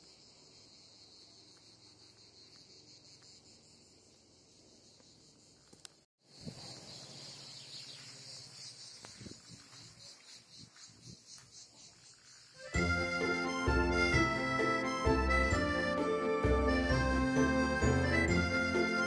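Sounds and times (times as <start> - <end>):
cicadas chirring: 0.0 - 13.6.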